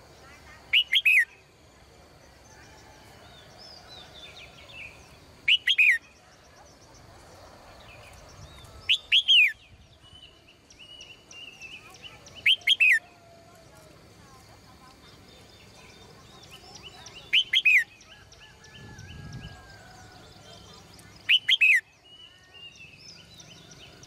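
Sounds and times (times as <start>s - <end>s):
other birds chirping: 0.0s - 1.5s, 2.3s - 24.0s
bulbul singing whistled notes: 0.7s - 1.4s, 4.8s - 7.0s, 8.8s - 13.2s, 16.4s - 20.3s, 21.1s - 24.0s.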